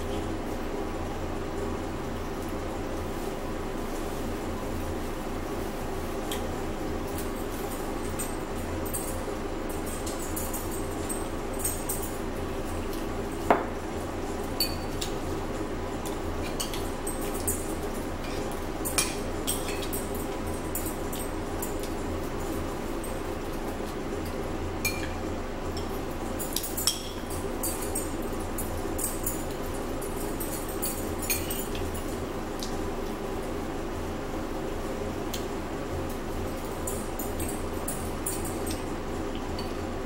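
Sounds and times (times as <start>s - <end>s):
low background hum: 0.0s - 40.0s
spoons clinking on ceramic bowls: 14.6s - 15.1s, 30.6s - 31.8s.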